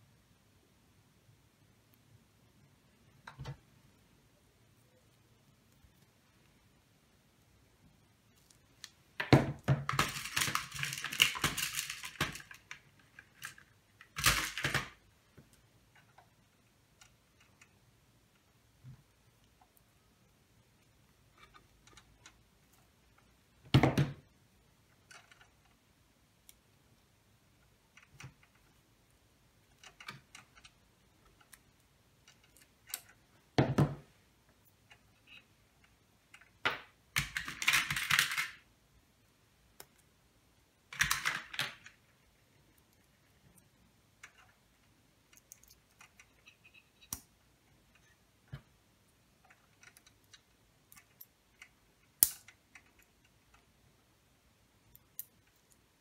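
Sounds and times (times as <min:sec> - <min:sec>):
pliers and wires clicking: 0:49.4 - 0:53.7, 0:54.8 - 0:55.8.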